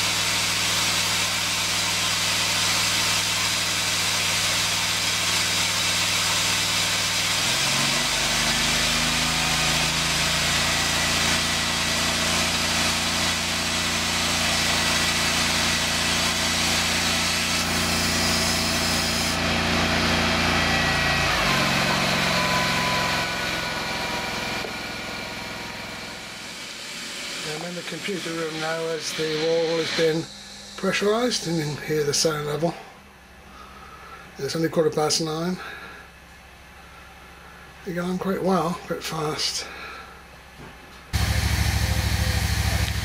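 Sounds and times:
insulation machine motor hum: 6.3s - 33.4s, 41.1s - 43.0s.

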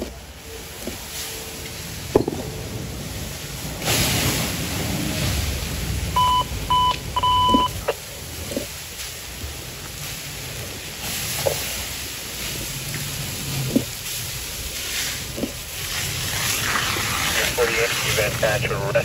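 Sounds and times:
fire hose stream rushing: 0.2s - 19.0s
electronic beeps: 6.2s - 7.8s.

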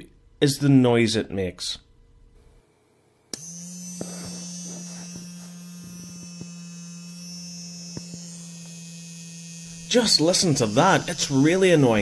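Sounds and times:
toy vibration motor buzzing: 3.4s - 12.0s.

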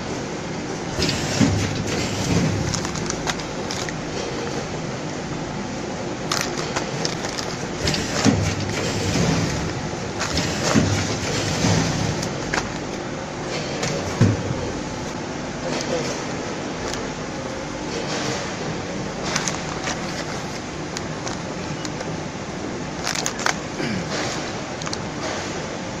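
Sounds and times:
packaging machinery running: 0.0s - 26.0s
clicks and clatter: 1.0s - 4.5s, 19.2s - 22.1s, 23.0s - 25.4s.

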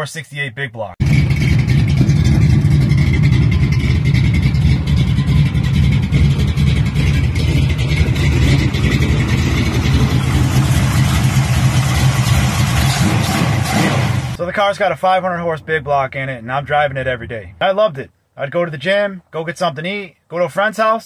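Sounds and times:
car engine running loudly: 1.0s - 14.4s.

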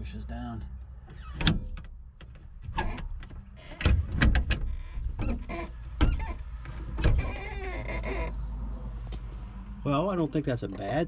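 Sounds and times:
window glass knocks and clunks: 1.4s - 7.4s.

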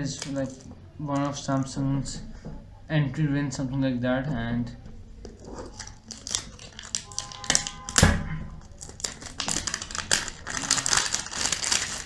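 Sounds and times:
plastic film crinkling: 0.0s - 1.5s, 5.4s - 8.0s, 8.6s - 12.0s
knife slitting shrink-wrap: 8.8s - 12.0s.

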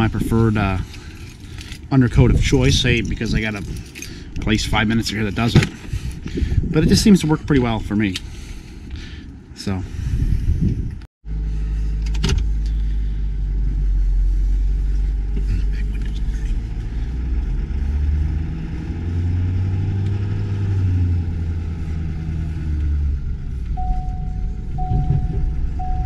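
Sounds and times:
truck engine hum: 11.2s - 26.0s.

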